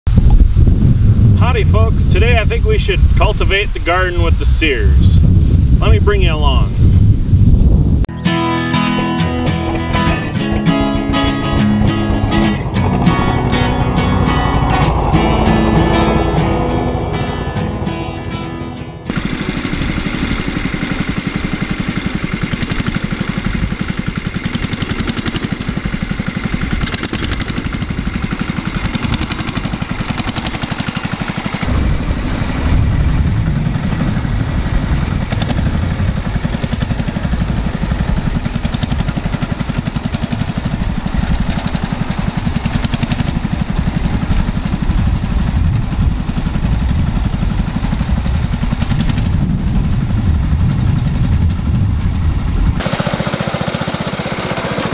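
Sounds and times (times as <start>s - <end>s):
garden tractor engine running: 8.1s - 15.1s, 18.2s - 54.9s.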